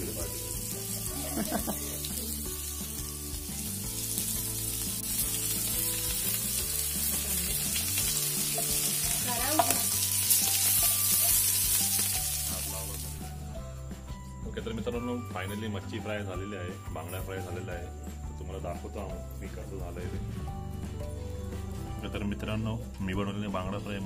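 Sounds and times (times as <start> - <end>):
fish sizzling in hot oil: 0.0 - 13.6.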